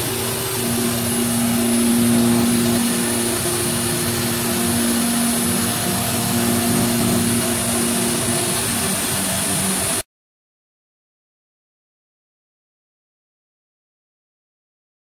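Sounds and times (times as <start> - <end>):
dust collector air rush: 0.0 - 10.0
high whine: 0.0 - 10.0
router spindle milling plastic: 0.0 - 10.0.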